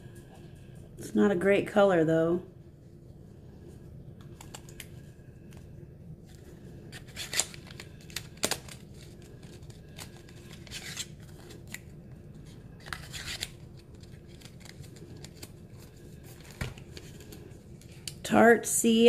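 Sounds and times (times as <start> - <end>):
packaging rustling: 6.2 - 18.2.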